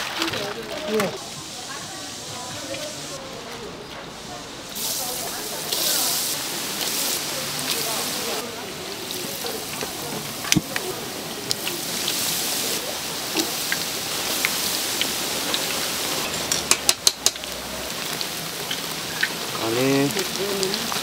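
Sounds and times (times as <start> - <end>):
food deep-frying in oil: 4.2 - 21.0.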